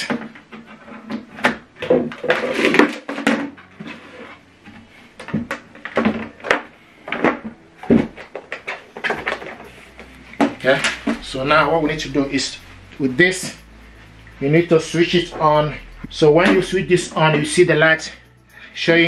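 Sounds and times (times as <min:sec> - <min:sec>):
cables moving: 0:07.0 - 0:19.0.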